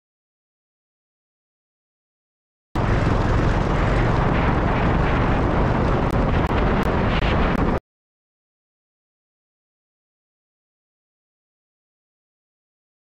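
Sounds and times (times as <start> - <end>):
vehicle road noise: 2.8 - 7.8
wind buffeting microphone: 2.8 - 7.8.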